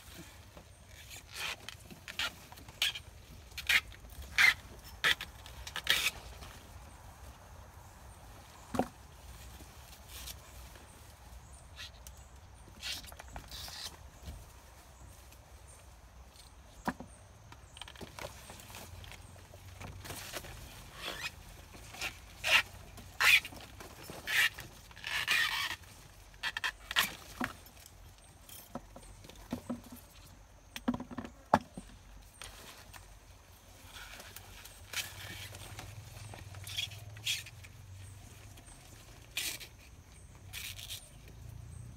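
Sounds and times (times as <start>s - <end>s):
leaves and stalks rustling: 0.0s - 30.3s, 31.7s - 41.9s.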